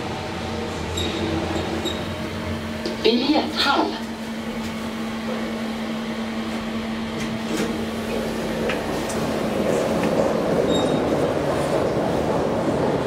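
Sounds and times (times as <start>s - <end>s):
elevator hum: 0.0s - 13.0s
murmur of station crowd: 0.0s - 13.0s.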